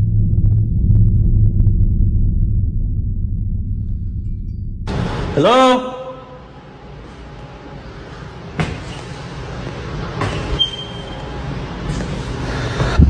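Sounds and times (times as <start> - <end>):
continuous low rumble: 0.0 - 5.6.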